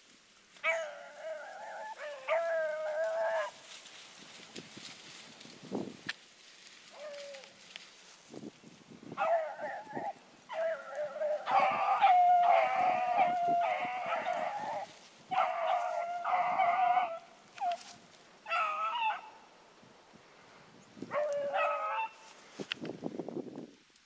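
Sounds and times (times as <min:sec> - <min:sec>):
hounds baying: 0:00.6 - 0:03.6, 0:09.2 - 0:19.4, 0:21.1 - 0:22.3.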